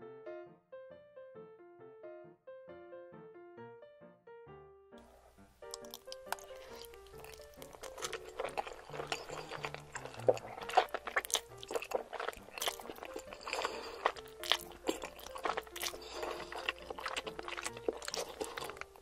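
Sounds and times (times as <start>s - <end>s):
background music: 0.0s - 19.0s
chewing and slurping: 5.0s - 19.0s
wet mouth clicks: 5.7s - 18.9s.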